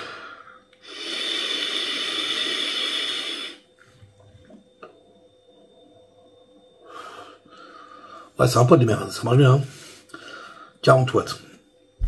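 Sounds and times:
vape rushing hiss: 0.8s - 3.6s.

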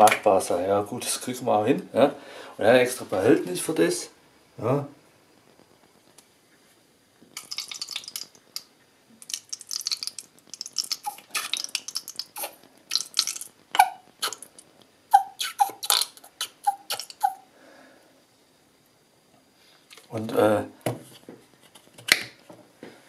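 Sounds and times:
bottle gurgling: 7.4s - 17.4s
sauce squelching from bottle: 9.2s - 14.6s.

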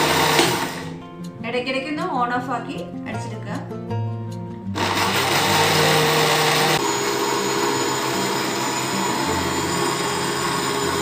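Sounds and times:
mixer grinder motor whine: 0.0s - 1.0s, 4.7s - 11.0s.

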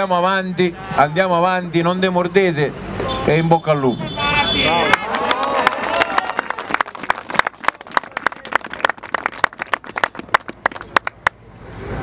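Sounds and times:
crowd applauding: 4.6s - 11.4s.

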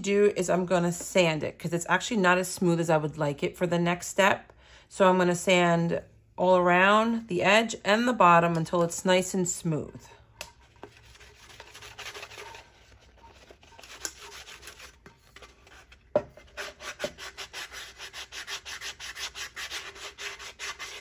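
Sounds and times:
sanding sponge rubbing: 11.0s - 15.0s, 16.5s - 21.0s.

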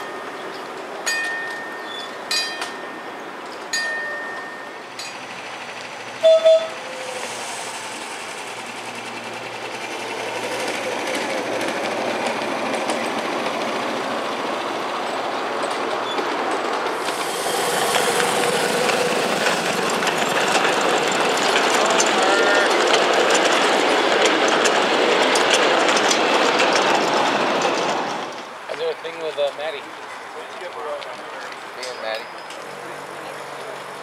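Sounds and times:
train horn toots: 6.2s - 6.9s, 22.2s - 22.8s
miniature train wheels clattering: 15.0s - 34.0s.

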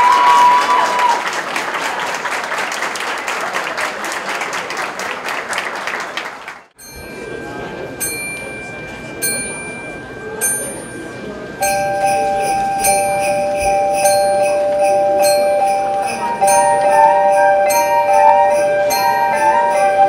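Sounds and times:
mallet percussion notes: 6.8s - 20.0s
wind band playing chords: 11.8s - 20.0s.

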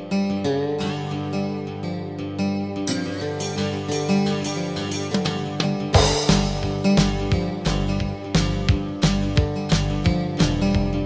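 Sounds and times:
plucked guitar over a beat: 0.0s - 11.0s
low drum thumps: 6.0s - 8.1s.

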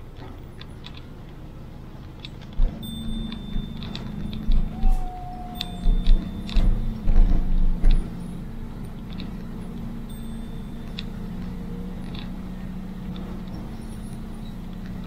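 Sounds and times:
car engine and road noise: 0.0s - 15.0s
low thumps: 2.6s - 9.8s.

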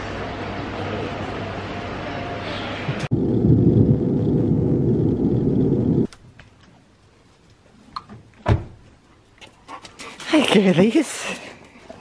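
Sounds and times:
low vehicle rumble: 0.2s - 6.1s.

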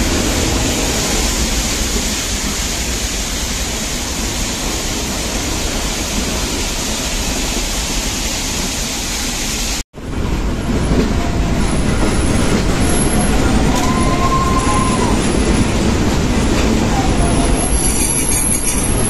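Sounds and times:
train running on rails: 0.0s - 19.0s
wheel squeal: 11.6s - 15.6s, 17.1s - 19.0s.

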